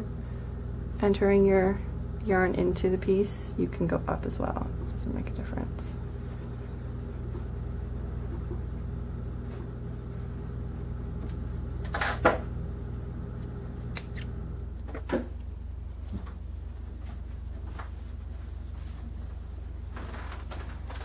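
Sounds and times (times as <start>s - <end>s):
steady low hum: 0.0s - 21.0s
thread snips cutting: 13.9s - 14.3s.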